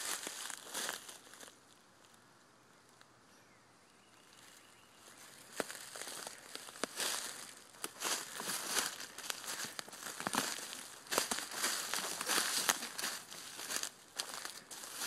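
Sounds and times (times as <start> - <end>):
footsteps through dry leaves: 0.0 - 1.5, 4.4 - 15.0
twigs snapping: 5.5 - 15.0.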